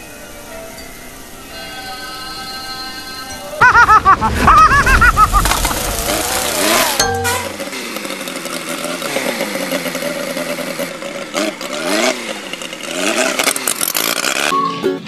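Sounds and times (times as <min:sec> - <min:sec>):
race car engines revving: 0:03.5 - 0:14.6.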